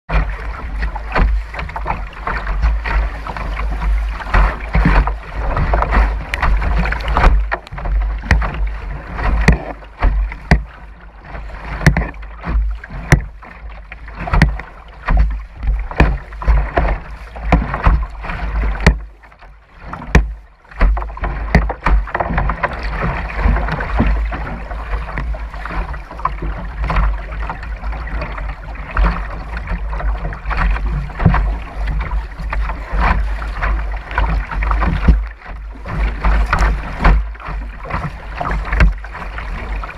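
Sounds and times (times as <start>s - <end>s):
river water rushing and splashing: 0.1s - 39.9s
slaps and knocks on kayak hull: 0.1s - 39.9s.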